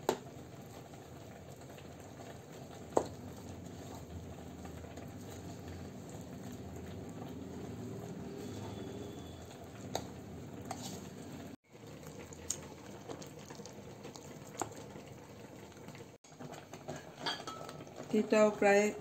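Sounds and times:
spoon stirring wet batter: 0:02.0 - 0:15.0.

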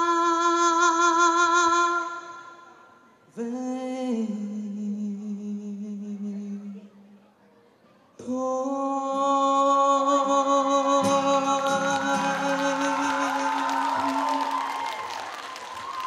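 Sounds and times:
man singing long note: 0:08.2 - 0:14.6
audience cheering and whooping: 0:11.9 - 0:16.0.

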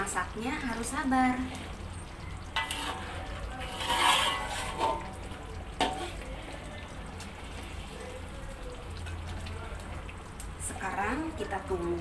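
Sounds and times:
metal spatula scraping wok: 0:01.3 - 0:06.3.

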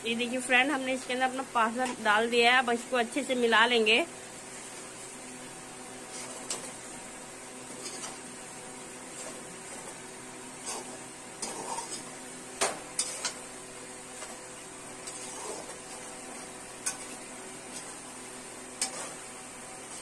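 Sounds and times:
low sizzle of frying: 0:00.0 - 0:20.0
metal spatula scraping pan: 0:07.7 - 0:08.2, 0:09.1 - 0:12.2, 0:13.0 - 0:13.4, 0:15.0 - 0:17.9, 0:18.8 - 0:19.2.

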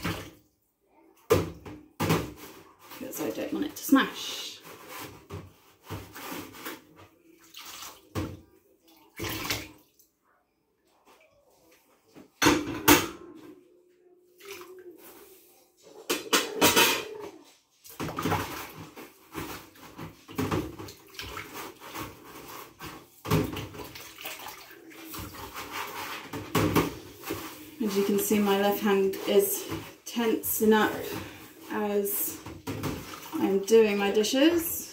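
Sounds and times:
water sloshing in sink: 0:00.0 - 0:00.5, 0:01.3 - 0:10.1, 0:14.3 - 0:15.3, 0:17.8 - 0:34.9.

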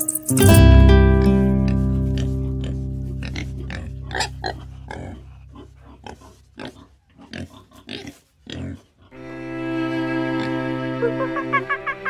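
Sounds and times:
guitar music: 0:00.0 - 0:05.8
pig grunting: 0:01.8 - 0:09.2.

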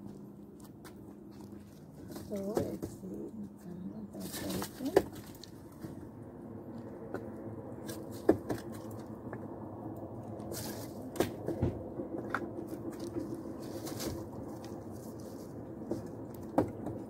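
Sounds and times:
distant train rumble: 0:00.0 - 0:17.0
firewood logs knocking together: 0:07.9 - 0:09.4, 0:10.5 - 0:14.2, 0:15.8 - 0:17.0.

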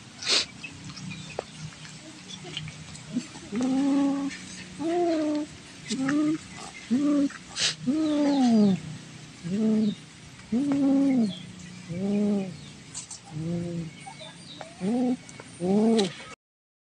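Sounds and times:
cat growling moans: 0:03.1 - 0:08.8, 0:13.3 - 0:13.9, 0:14.8 - 0:16.4.

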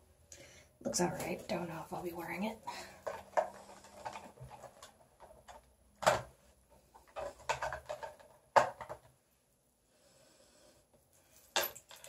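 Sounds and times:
small objects knocking and clicking: 0:02.7 - 0:09.2, 0:11.4 - 0:12.0.

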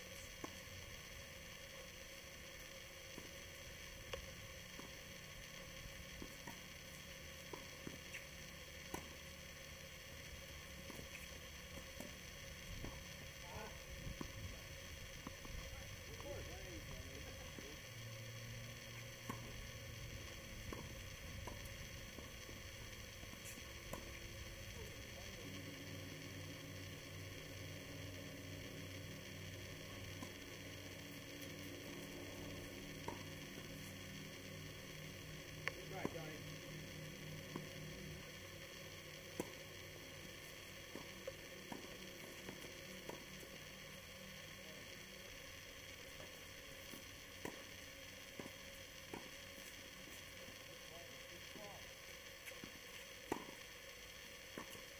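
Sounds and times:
microphone hiss and hum: 0:00.0 - 0:54.9
tennis racquets hitting ball: 0:08.9 - 0:09.2, 0:10.8 - 0:12.2, 0:19.2 - 0:19.6, 0:20.7 - 0:22.3, 0:23.3 - 0:24.2, 0:31.0 - 0:33.9, 0:39.3 - 0:39.6, 0:40.9 - 0:43.2, 0:47.4 - 0:47.6, 0:53.3 - 0:53.6, 0:54.6 - 0:54.8.

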